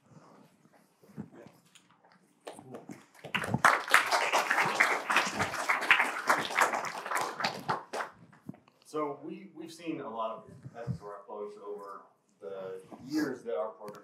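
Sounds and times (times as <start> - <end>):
audience applause: 3.1 - 8.2.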